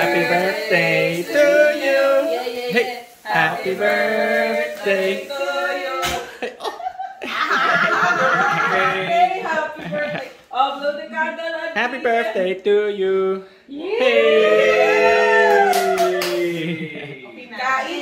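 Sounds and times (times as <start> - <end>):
human voices: 13.1 - 17.3.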